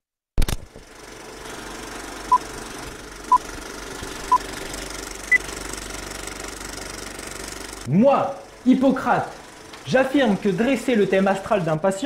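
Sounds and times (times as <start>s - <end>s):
film projector rattle with crackle: 0.4s - 7.9s.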